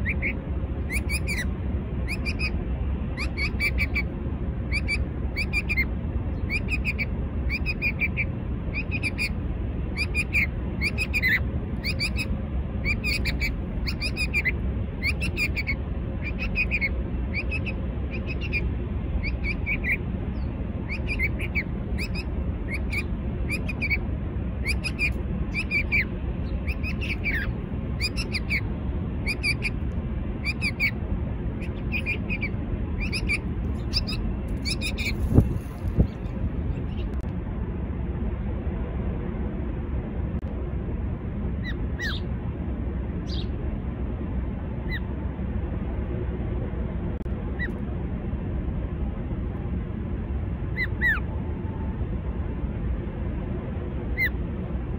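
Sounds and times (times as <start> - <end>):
small bird chirping: 0.0 - 4.1, 4.7 - 24.0, 24.6 - 29.8, 30.4 - 37.2, 43.2 - 43.6
steady low rumble: 0.0 - 54.9.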